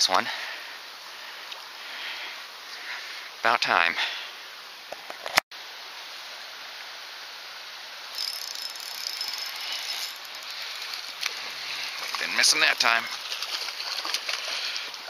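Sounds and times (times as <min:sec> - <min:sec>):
steady hiss: 0:00.1 - 0:13.1
fishing reel whirring: 0:08.1 - 0:12.2.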